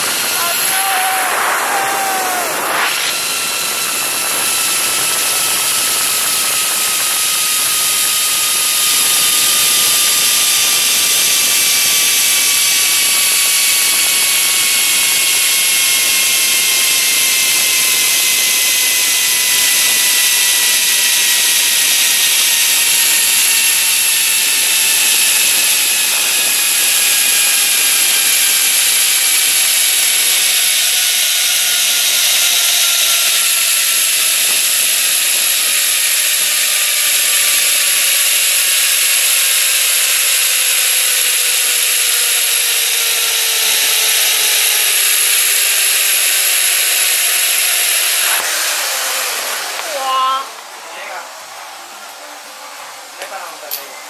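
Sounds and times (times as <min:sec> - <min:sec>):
rush of wind: 0:00.0 - 0:07.2
zip line pulley whine: 0:00.0 - 0:53.9.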